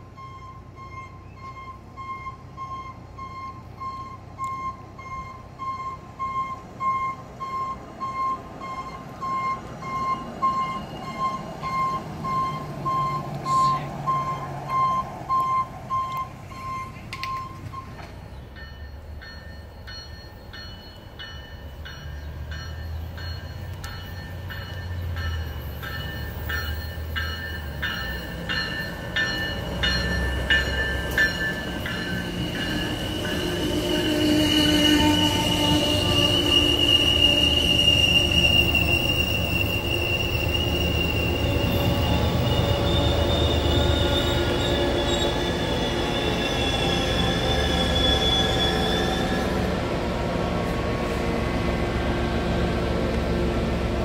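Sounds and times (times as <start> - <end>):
train wheels clicking over rail joints: 0.9 - 47.4
high wheel squeal: 22.8 - 49.7.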